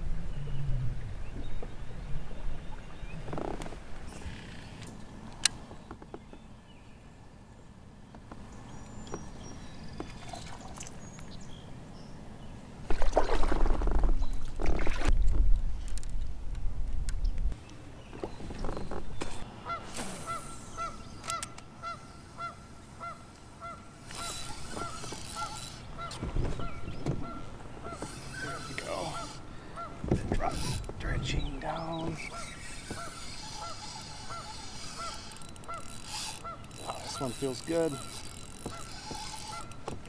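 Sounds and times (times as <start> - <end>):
microphone handling rumble and knocking: 13.3 - 19.4, 26.0 - 28.2, 30.0 - 32.3.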